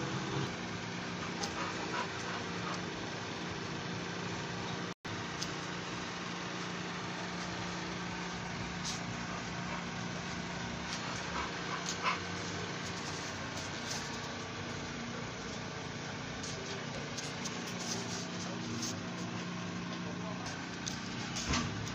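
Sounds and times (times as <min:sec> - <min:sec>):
motor humming: 0:00.0 - 0:21.9.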